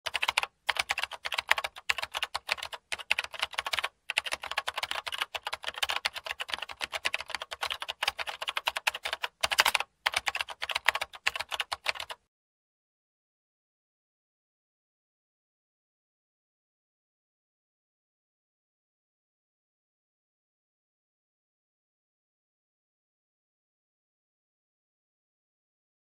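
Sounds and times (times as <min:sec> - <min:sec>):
computer keyboard typing: 0:00.0 - 0:12.2.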